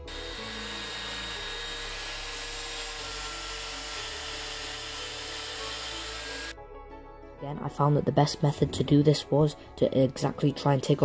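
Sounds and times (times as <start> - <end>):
hand router cutting wood: 0.0 - 6.6.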